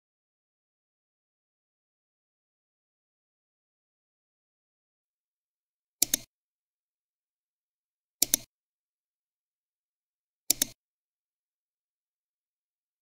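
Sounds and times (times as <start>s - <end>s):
computer mouse clicks: 6.0s - 6.3s, 8.2s - 8.5s, 10.5s - 10.8s.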